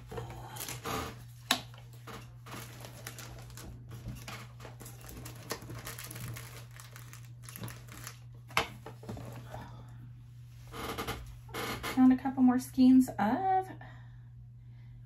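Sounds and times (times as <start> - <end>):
low steady hum: 0.0 - 15.0
packaging crinkling: 0.6 - 9.4.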